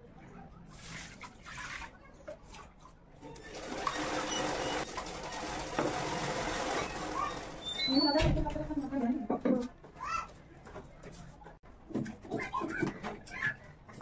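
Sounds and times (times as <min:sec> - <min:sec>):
sewing machine running: 0:03.4 - 0:08.0.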